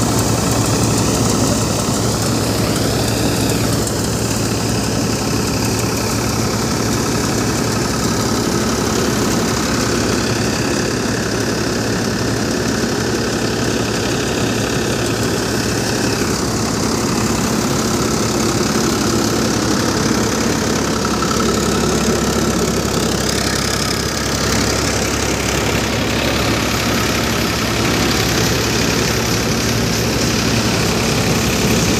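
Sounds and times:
thresher machine running: 0:00.0 - 0:31.9.

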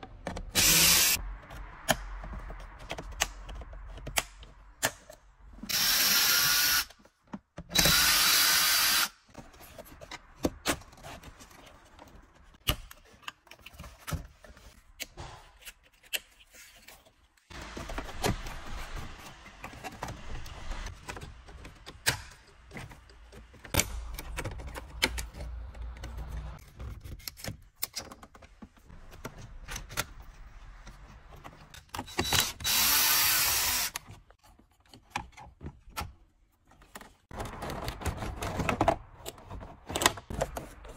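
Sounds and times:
power screwdriver running: 0:00.6 - 0:01.2, 0:05.7 - 0:06.9, 0:07.8 - 0:09.1, 0:32.3 - 0:34.0.

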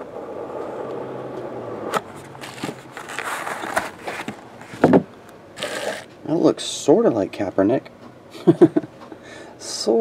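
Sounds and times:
cardboard box opening: 0:02.2 - 0:04.9
plastic wrap crinkling: 0:02.3 - 0:04.8.

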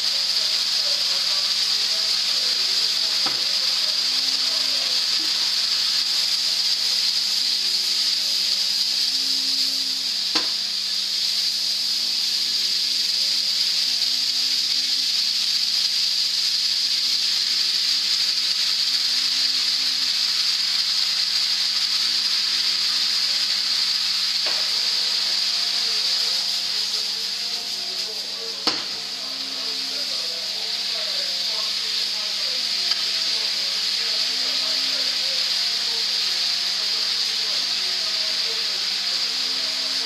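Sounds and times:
stir-fry sizzling in a pan: 0:00.0 - 0:40.0.

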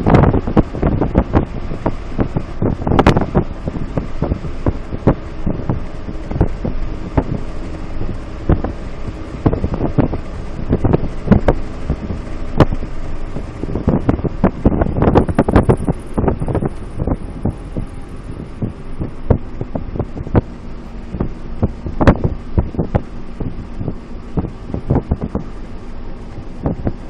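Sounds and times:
car engine drone: 0:00.0 - 0:27.0
road noise: 0:00.0 - 0:27.0
thumps and rattles: 0:21.1 - 0:25.6.

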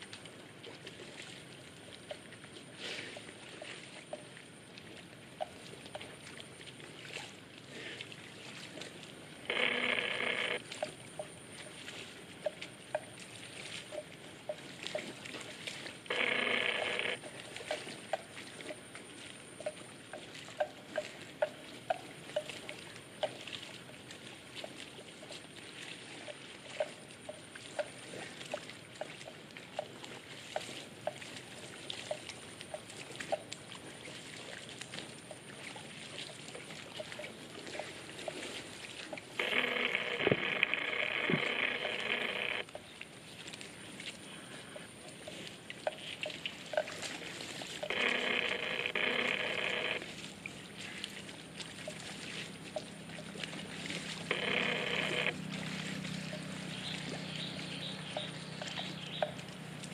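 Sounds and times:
loud buzzing tone: 0:09.5 - 0:10.6, 0:16.1 - 0:17.2, 0:39.4 - 0:42.6, 0:47.9 - 0:50.1, 0:54.3 - 0:55.4
buffalo cropping grass: 0:52.2 - 0:59.9.

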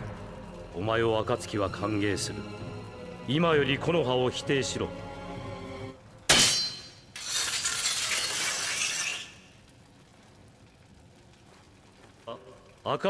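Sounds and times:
blade scraping metal: 0:06.3 - 0:09.4.

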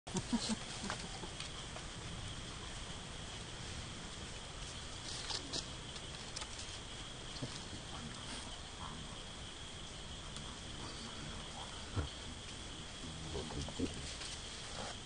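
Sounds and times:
high insect drone: 0:00.1 - 0:15.0
dry leaves rustling: 0:03.4 - 0:08.4.

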